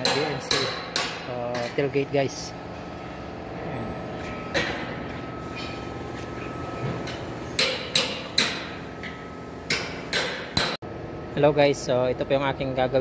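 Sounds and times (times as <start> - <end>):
hammer striking metal: 0.0 - 1.7, 7.1 - 10.8
workshop background noise: 0.0 - 13.0.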